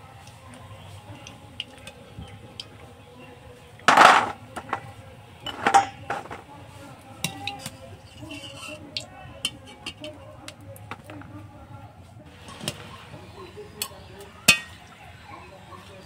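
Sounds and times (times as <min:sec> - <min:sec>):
fried dough rattling into metal bowl: 0:03.8 - 0:06.6.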